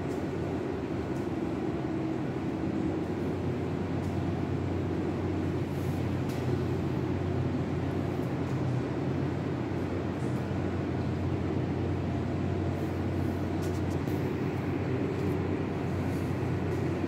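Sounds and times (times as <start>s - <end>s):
pump machinery humming: 0.0s - 17.0s.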